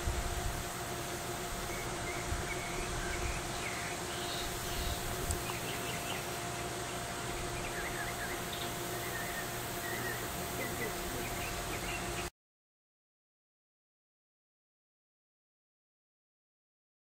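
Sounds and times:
steady hiss: 0.0s - 12.2s
low steady hum: 0.0s - 12.3s
distant small birds chirping: 0.6s - 12.3s.

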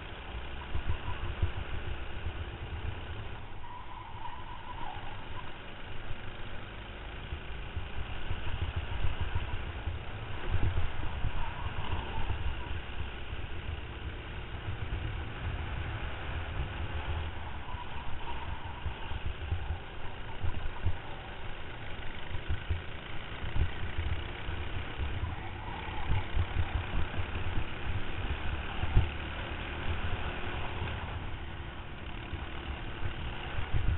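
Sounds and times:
kart engine running: 0.0s - 33.9s
wind buffeting microphone: 7.8s - 13.0s, 14.8s - 21.3s.

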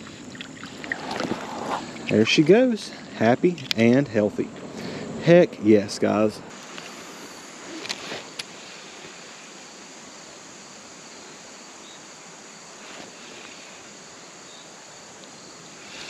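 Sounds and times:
faint outdoor hiss: 0.0s - 16.0s.

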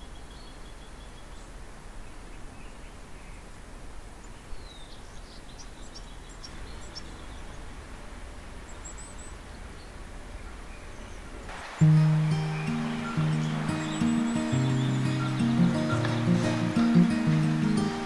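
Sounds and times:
birds chirping: 4.2s - 18.0s
low outdoor hush: 5.2s - 18.0s
bird trill: 11.6s - 18.0s.

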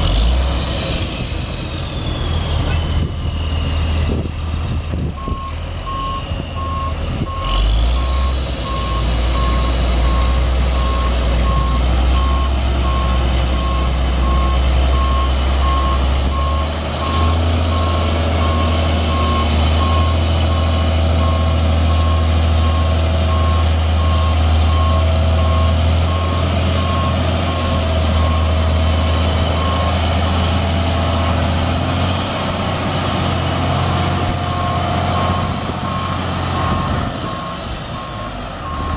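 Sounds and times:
diesel truck engine rumbling: 0.0s - 38.9s
reverse alarm beeping: 5.2s - 28.6s, 34.5s - 38.9s.

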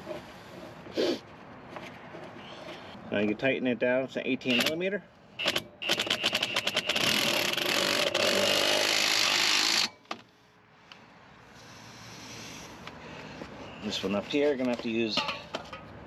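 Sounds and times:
power wrench clicking and rattling: 5.4s - 10.0s.

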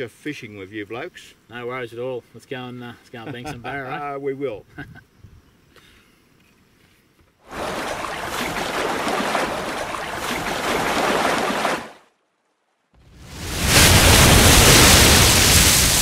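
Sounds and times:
water rushing and splashing: 7.5s - 12.0s, 13.1s - 16.0s.

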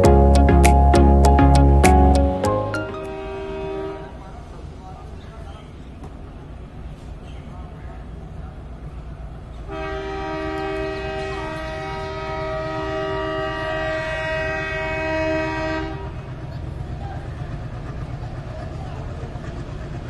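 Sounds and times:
locomotive air horn blast: 2.6s - 4.2s, 9.7s - 16.2s.

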